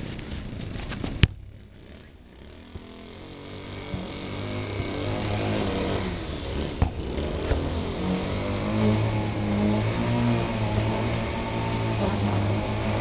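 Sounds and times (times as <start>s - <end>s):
football kicked on grass: 0.0s - 1.5s, 6.8s - 7.6s.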